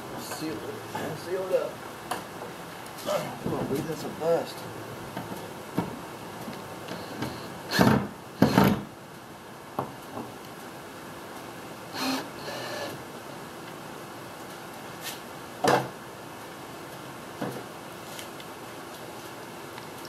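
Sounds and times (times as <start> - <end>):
cordless drill driving screws: 7.0 - 8.8, 12.0 - 13.0.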